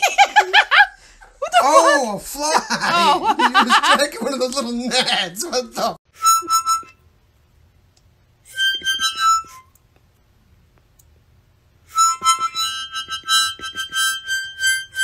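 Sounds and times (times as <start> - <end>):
miniature harmonica reeds: 6.2 - 7.0, 8.5 - 9.8, 11.9 - 15.0.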